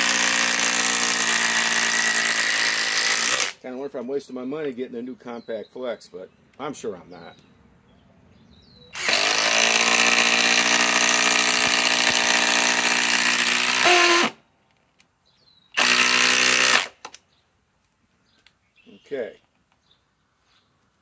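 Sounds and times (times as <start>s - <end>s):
impact driver hammering screw: 0.0s - 3.6s, 9.0s - 14.4s, 15.8s - 17.2s.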